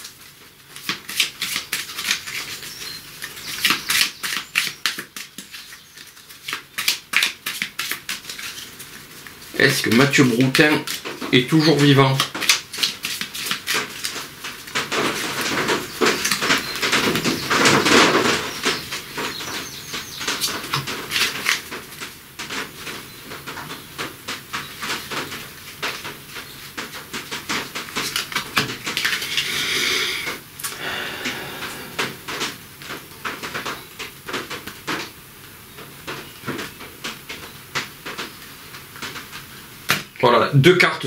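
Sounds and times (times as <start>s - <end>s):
cards sliding on tablecloth: 29.2s - 32.5s.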